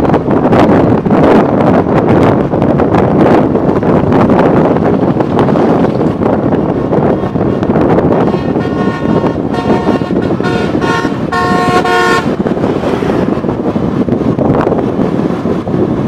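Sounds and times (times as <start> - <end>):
wind rush on microphone: 0.0 - 16.0
vehicle horn honking: 8.3 - 12.3.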